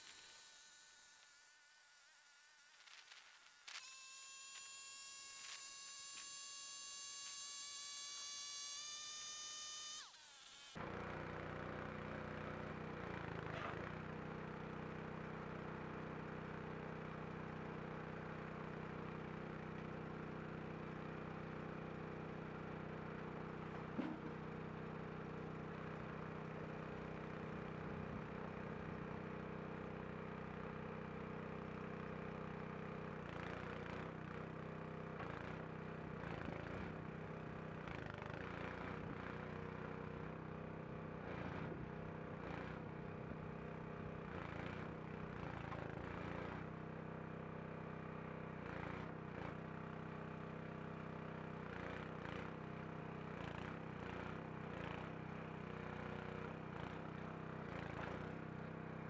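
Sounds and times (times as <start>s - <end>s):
bandsaw mill engine running: 18.7s - 46.8s
log clunking and scraping: 23.7s - 24.4s.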